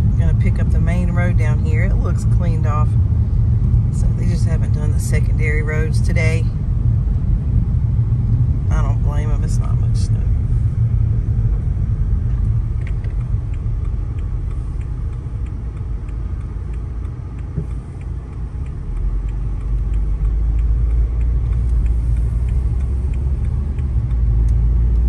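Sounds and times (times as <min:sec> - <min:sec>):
car cabin engine and tyre rumble: 0:00.0 - 0:25.0
light regular ticking: 0:09.5 - 0:25.0.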